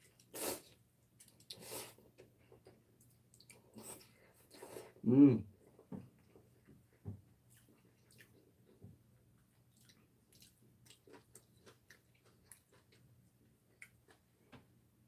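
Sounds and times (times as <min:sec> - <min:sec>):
person chewing with mouth clicks: 0:09.7 - 0:13.1.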